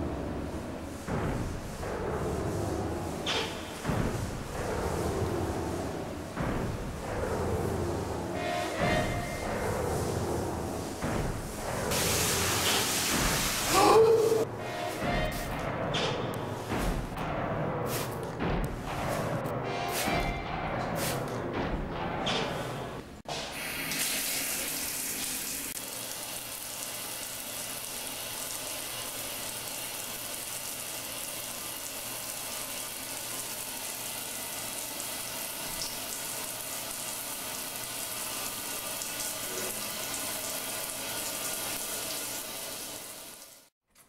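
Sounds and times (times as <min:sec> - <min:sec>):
shower water spattering on floor: 0:10.7 - 0:14.4, 0:23.5 - 0:43.7.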